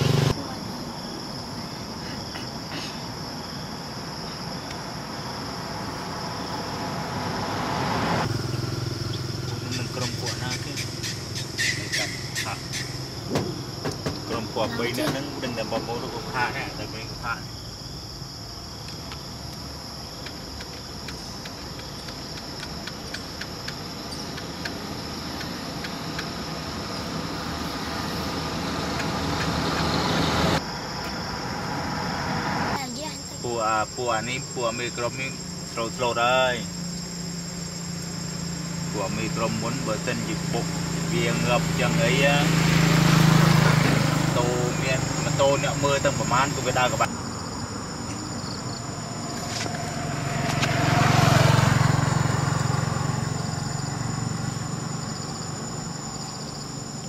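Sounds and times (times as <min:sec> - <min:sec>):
high-pitched insect drone: 0:00.0 - 0:57.0
sharp ticks: 0:18.8 - 0:26.4.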